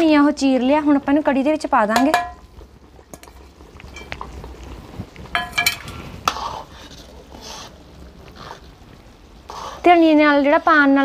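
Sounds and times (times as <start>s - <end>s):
metal ladle clinking in wok: 2.0s - 2.4s, 5.4s - 5.9s.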